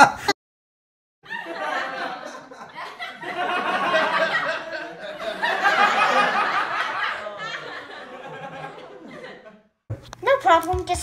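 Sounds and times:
children laughing: 1.2s - 9.6s.

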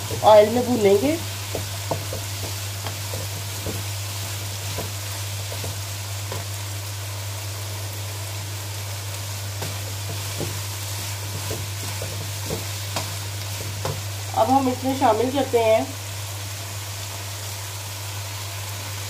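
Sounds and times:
wooden spatula scraping a pan: 0.0s - 6.5s, 9.6s - 14.0s
food sizzling in hot oil: 0.0s - 19.0s.

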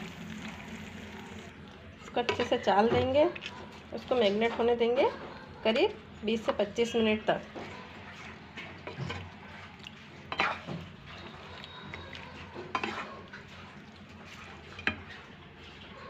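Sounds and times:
soft wet stirring: 1.4s - 16.0s
spatula knocking and scraping pan: 7.5s - 9.3s.

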